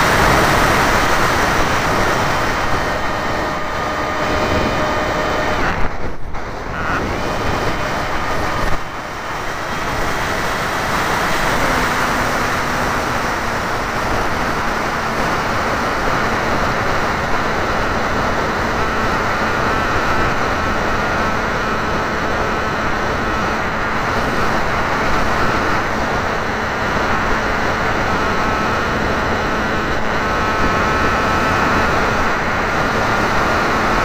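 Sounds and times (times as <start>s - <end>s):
wind rushing: 0.0s - 16.3s
model airplane motor whine: 0.0s - 34.0s.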